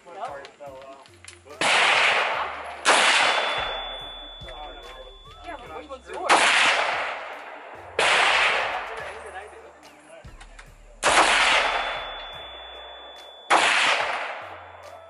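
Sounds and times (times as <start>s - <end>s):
rifle shots with echo: 1.6s - 5.2s, 6.2s - 9.3s, 11.0s - 15.0s.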